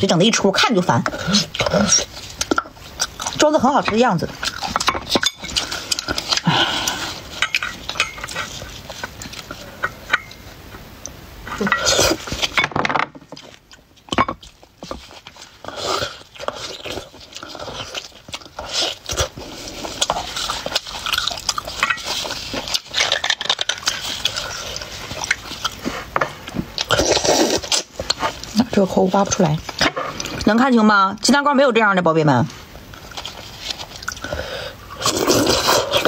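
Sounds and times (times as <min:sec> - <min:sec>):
sucking and eating: 0:00.0 - 0:12.6, 0:13.3 - 0:31.0, 0:32.5 - 0:36.0
metal spoon scraping bones: 0:07.3 - 0:10.4.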